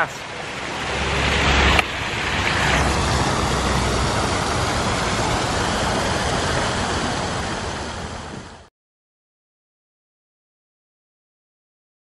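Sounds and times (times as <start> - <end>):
fountain water splashing: 0.0 - 8.7.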